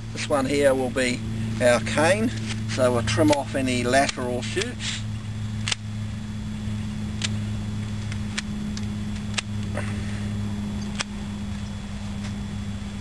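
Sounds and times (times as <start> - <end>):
low hum: 0.0 - 13.0
secateurs snipping: 1.4 - 5.0, 5.6 - 5.9, 7.1 - 10.0, 10.8 - 12.4.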